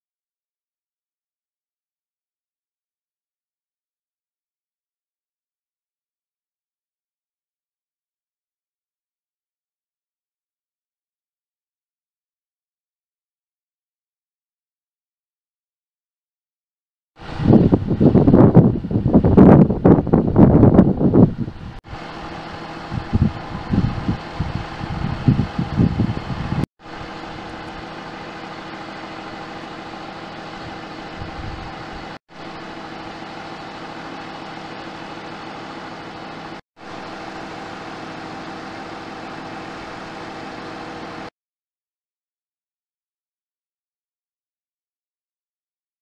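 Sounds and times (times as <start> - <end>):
wind buffeting microphone: 17.2 - 28.0, 30.5 - 32.2
diesel engine idling: 21.9 - 32.1.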